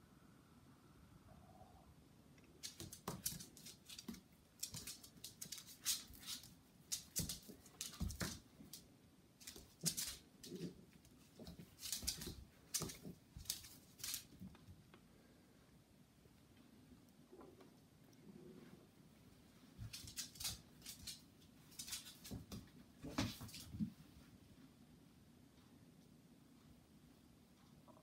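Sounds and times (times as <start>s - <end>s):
claws scrabbling on tiles: 2.6s - 14.6s, 19.7s - 23.9s.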